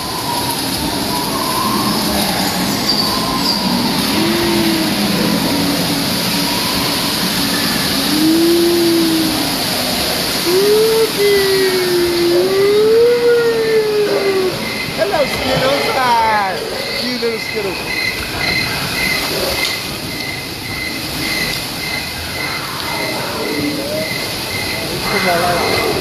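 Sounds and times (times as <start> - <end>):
wavering wailing tone: 0.0 - 18.2
ride rumbling and rattling: 0.0 - 26.0.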